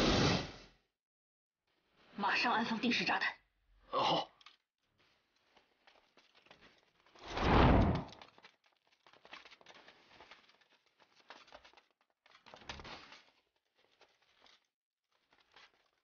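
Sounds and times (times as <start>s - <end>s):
running footsteps on cave floor: 4.9s - 16.0s.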